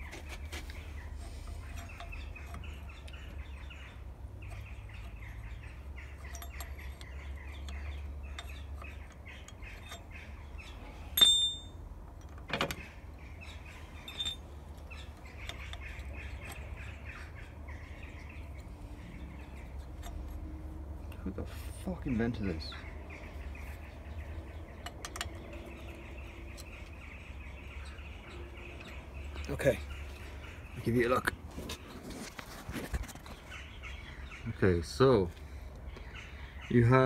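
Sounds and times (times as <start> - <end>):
small birds chirping: 0.0 - 37.0
screwdriver clinking on metal: 11.2 - 12.4, 14.0 - 14.5.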